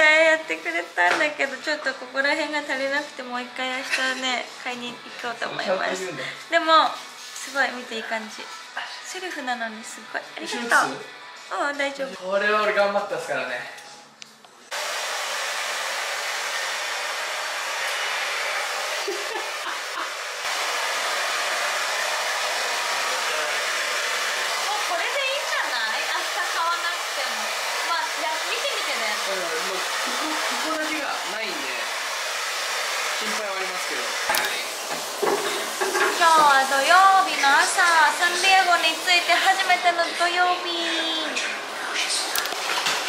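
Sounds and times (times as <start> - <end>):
hair dryer blowing: 14.7 - 43.0.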